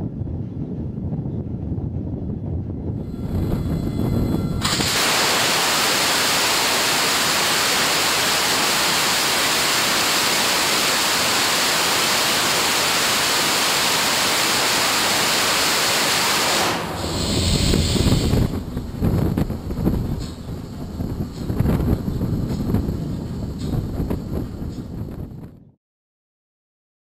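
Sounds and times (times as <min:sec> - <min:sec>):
low uneven rumble: 0:00.1 - 0:04.6, 0:17.0 - 0:25.6
rocket thruster rushing roar: 0:02.9 - 0:24.6.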